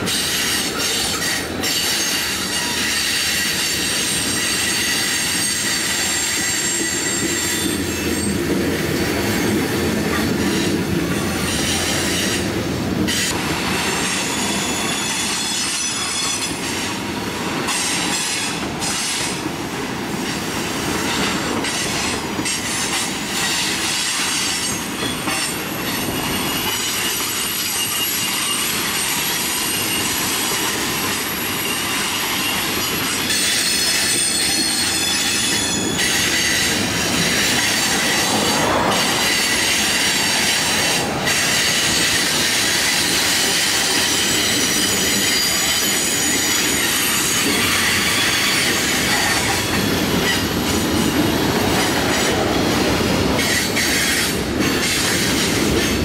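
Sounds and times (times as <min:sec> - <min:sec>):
train cars rumbling and clattering: 0:00.0 - 0:56.0
high-pitched wheel squeal: 0:00.2 - 0:08.4, 0:14.2 - 0:16.6, 0:31.2 - 0:51.1.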